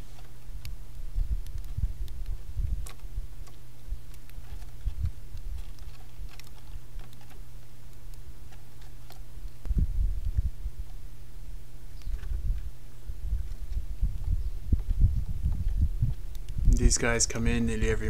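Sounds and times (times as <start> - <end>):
low thumps: 12.1 - 16.8.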